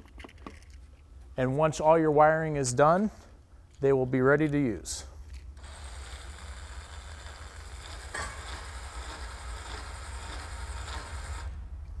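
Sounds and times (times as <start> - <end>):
actuator motor whirring: 5.6 - 11.6.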